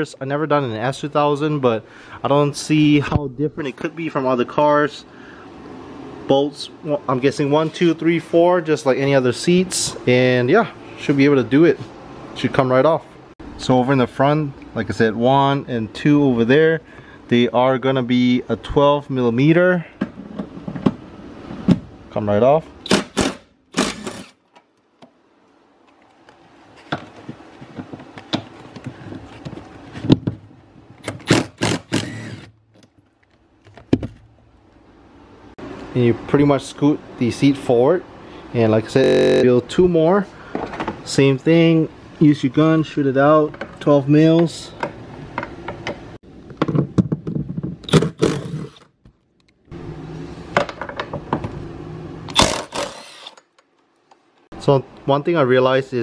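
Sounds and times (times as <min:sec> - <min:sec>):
impact driver running: 0:22.9 - 0:24.4, 0:31.0 - 0:32.5, 0:39.0 - 0:39.4, 0:52.3 - 0:53.4
impact gun driving bolt: 0:22.9 - 0:24.4.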